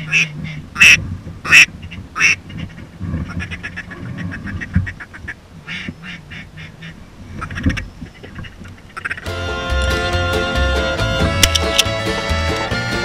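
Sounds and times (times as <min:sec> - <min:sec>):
duck call quacks: 0:09.0 - 0:13.0.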